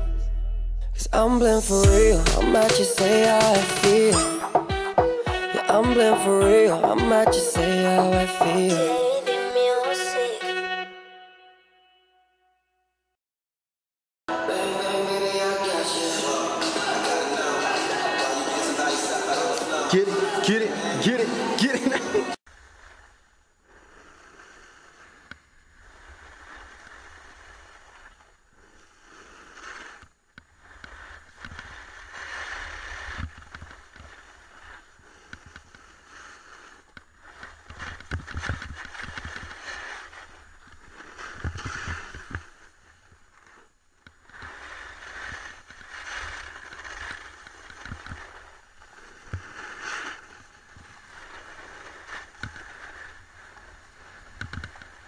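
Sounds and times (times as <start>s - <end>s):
skis scraping on snow: 16.0s - 55.0s.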